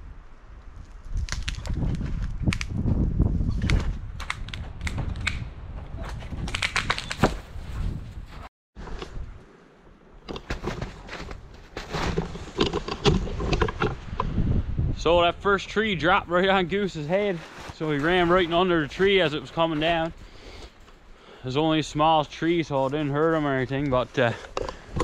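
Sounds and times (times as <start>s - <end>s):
tree cracking and falling: 0.6s - 2.8s
dry branches breaking: 0.8s - 2.8s
twigs snapping: 0.8s - 2.8s, 6.4s - 7.4s
crunching in snow: 10.4s - 14.0s, 16.4s - 21.0s.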